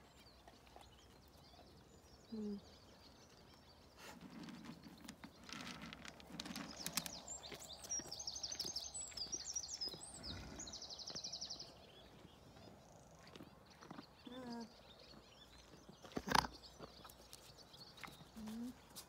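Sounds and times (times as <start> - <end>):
small birds chirping: 0.0 - 19.0
rustling and clicking: 4.0 - 8.8.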